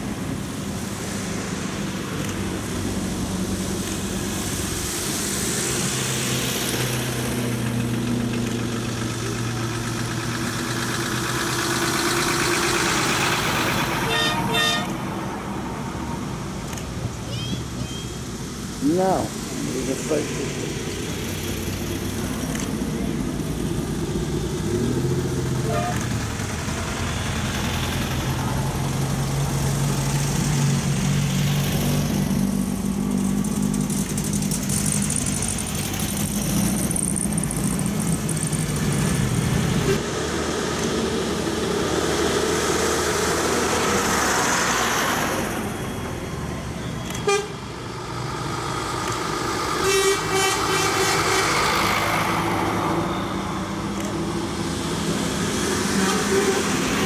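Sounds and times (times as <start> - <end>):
old cars passing by: 0.0 - 57.0
truck passing: 0.0 - 57.0
horn tooting: 14.0 - 15.0, 25.6 - 26.1, 47.1 - 47.6, 49.8 - 51.6, 56.0 - 56.9.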